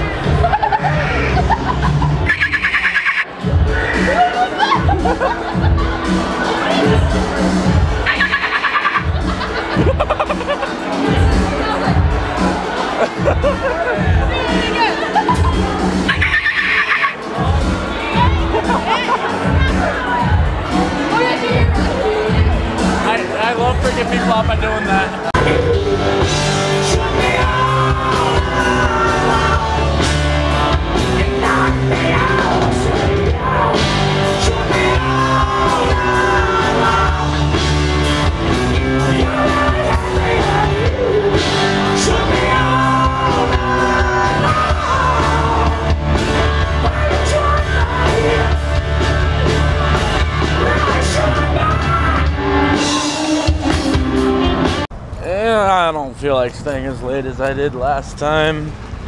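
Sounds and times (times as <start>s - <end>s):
live rock band: 0.0s - 55.0s
person singing: 25.4s - 37.8s, 38.8s - 54.8s.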